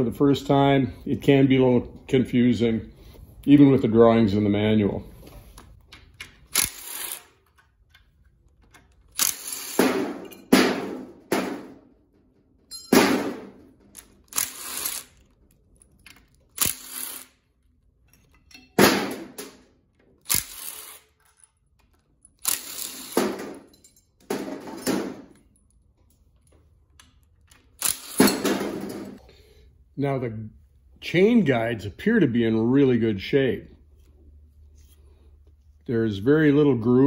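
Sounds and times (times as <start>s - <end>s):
cordless impact driver bursts: 6.5s - 7.4s, 9.2s - 10.0s, 14.3s - 15.2s, 16.6s - 17.3s, 20.3s - 21.1s, 22.4s - 23.3s, 27.8s - 28.4s.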